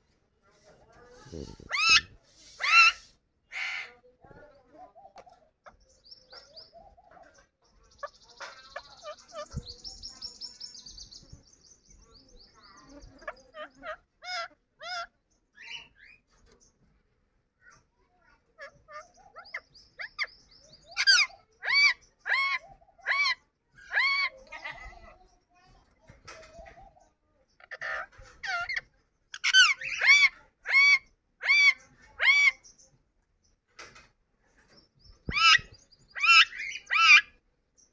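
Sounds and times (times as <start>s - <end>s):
parakeet chirping and chattering: 0.5s - 37.9s
parakeet calling: 1.4s - 4.1s, 7.9s - 11.4s, 12.4s - 16.3s, 27.6s - 32.7s, 35.2s - 37.4s.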